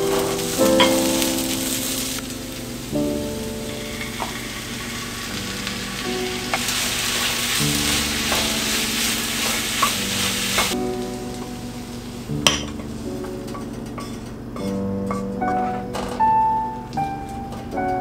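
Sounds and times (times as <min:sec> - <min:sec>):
vegetables sizzling in a frying pan: 0:00.0 - 0:15.2
wooden spatula clacking on pan: 0:12.5 - 0:16.1.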